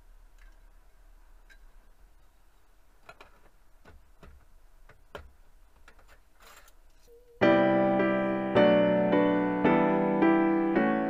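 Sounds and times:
piano music: 7.4s - 11.0s.

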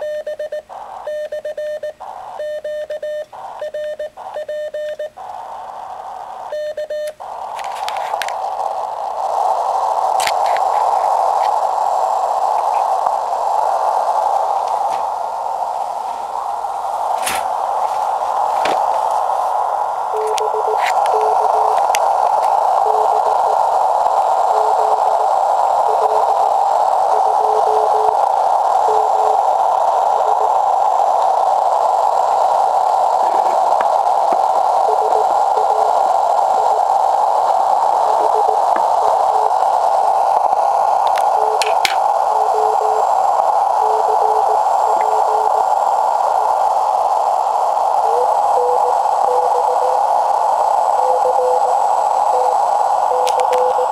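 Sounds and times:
morse code beeps: 0.0s - 5.1s, 6.5s - 7.2s, 20.1s - 21.9s, 22.7s - 23.7s, 24.4s - 26.4s, 27.0s - 28.2s, 28.8s - 29.5s, 30.1s - 30.6s, 34.3s - 37.0s, 38.0s - 39.6s, 41.1s - 43.2s, 43.8s - 45.8s, 48.0s - 50.1s, 50.9s - 53.9s
radio band hiss: 0.0s - 53.9s
static crackles: 0.0s - 53.9s
clicks: 20.2s - 23.6s, 41.1s - 43.0s, 52.4s - 53.9s.

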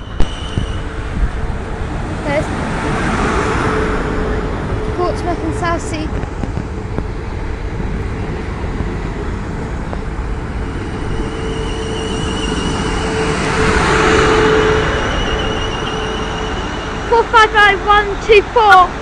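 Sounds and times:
high wavering whine: 0.0s - 2.5s, 9.2s - 18.4s
train wheels rumbling on rail: 0.0s - 19.0s.

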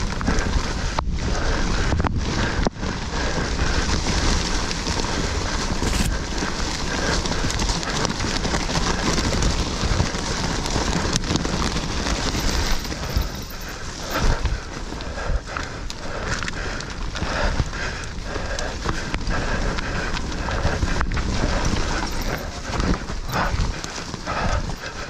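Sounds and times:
bike rattling and knocking: 0.0s - 25.0s
bike tyres rolling over dirt: 0.0s - 25.0s
wind noise on microphone: 0.0s - 25.0s.

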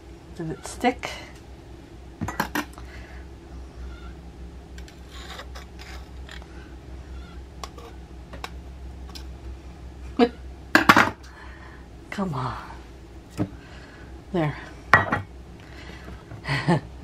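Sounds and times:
low steady hum: 0.0s - 17.0s
knife scraping metal cup: 4.9s - 6.4s.

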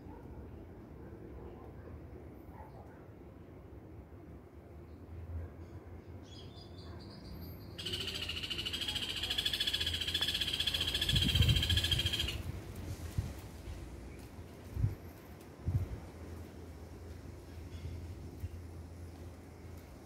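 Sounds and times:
animal high-pitched trill: 7.8s - 12.4s
faint high pulsing call: 7.8s - 12.4s.

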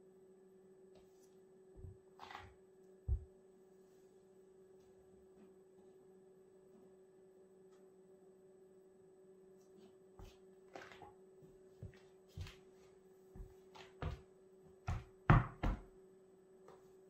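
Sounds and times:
sneaker footsteps on wooden floor: 13.4s - 14.3s.

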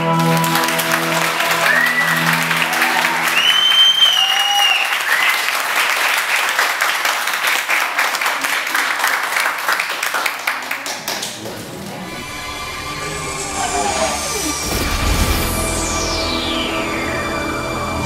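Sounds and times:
show music: 0.0s - 5.4s, 11.6s - 18.0s
audience clapping and cheering: 0.0s - 12.4s
high whoops: 1.4s - 5.5s.

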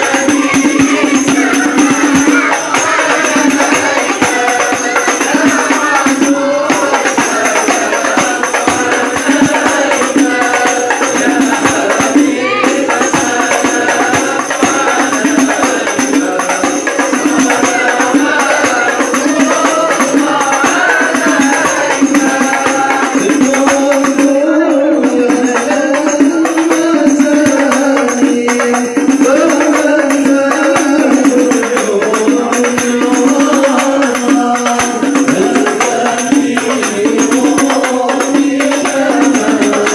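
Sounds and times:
frame drums beaten by hand: 0.0s - 39.9s
men singing devotional song: 0.0s - 39.9s.

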